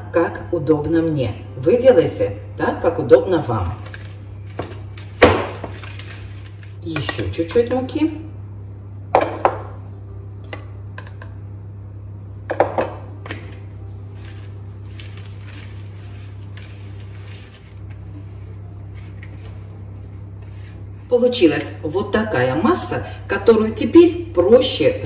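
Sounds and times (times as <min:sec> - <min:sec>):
low steady hum: 0:00.0 - 0:25.0
whisk scraping in bowl: 0:14.0 - 0:20.8.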